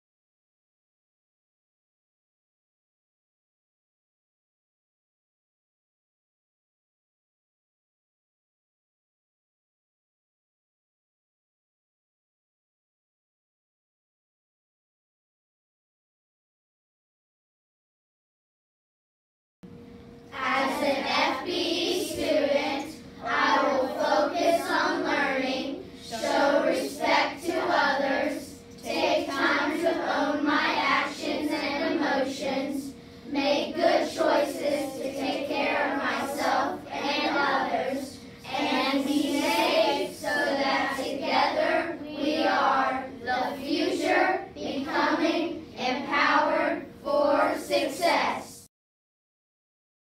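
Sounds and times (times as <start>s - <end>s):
children speaking in unison: 20.3s - 48.6s.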